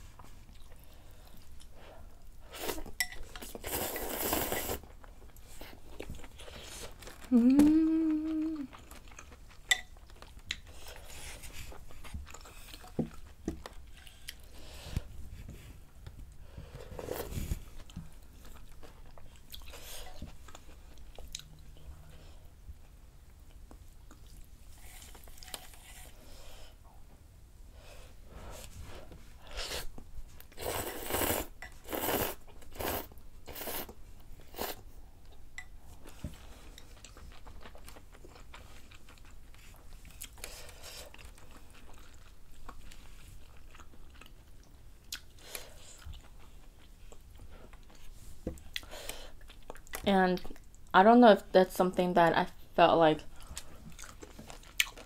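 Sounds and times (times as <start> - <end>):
soft chewing: 0.0 - 27.2, 27.8 - 51.0, 53.2 - 55.0
loud slurps of noodles: 3.6 - 4.8, 30.6 - 33.9.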